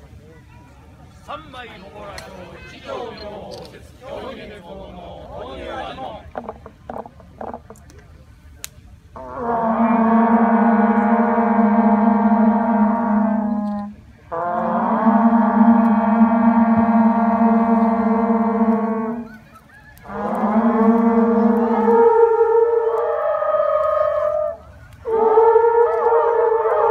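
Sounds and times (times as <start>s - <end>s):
conch shell trumpet blasts: 9.2s - 19.4s, 20.0s - 26.9s.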